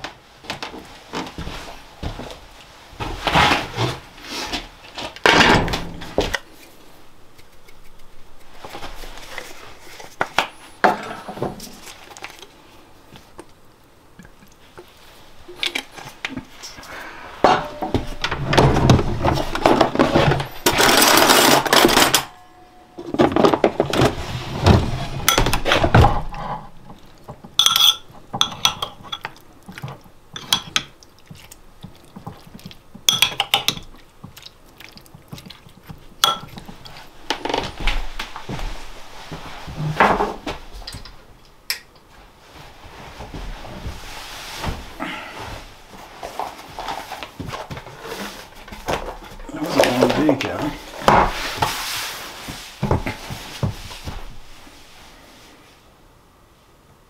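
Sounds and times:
dishes and utensils clinking: 0:25.2 - 0:26.3, 0:27.6 - 0:31.0, 0:32.2 - 0:34.0, 0:36.2 - 0:37.0.

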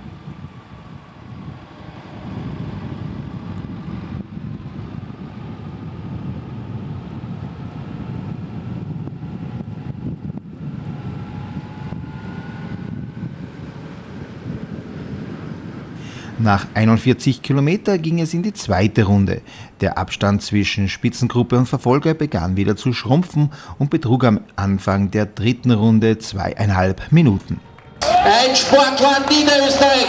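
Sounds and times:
wind rumble on microphone: 0:00.0 - 0:19.4
vehicle running at road speed: 0:00.0 - 0:19.8, 0:27.3 - 0:30.0.

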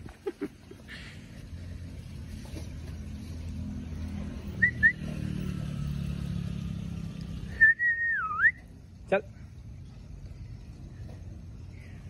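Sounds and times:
person whistling: 0:07.6 - 0:08.6.

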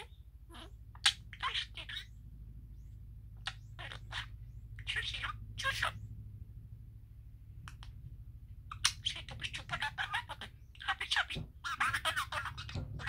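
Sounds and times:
budgerigar chattering: 0:00.0 - 0:02.2, 0:03.4 - 0:06.0, 0:08.7 - 0:13.0
low hum: 0:00.0 - 0:13.0.

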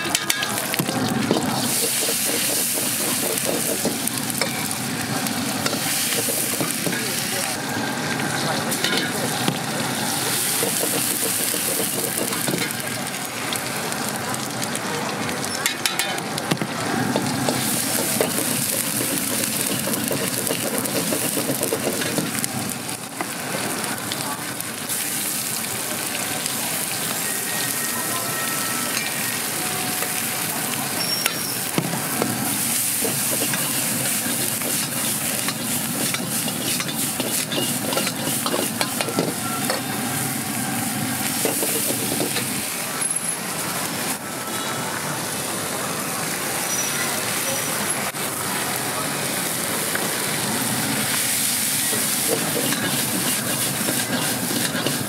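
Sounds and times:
metal ladle clinking on wok: 0:00.0 - 0:00.6
food sizzling in a wok: 0:00.0 - 0:55.0.

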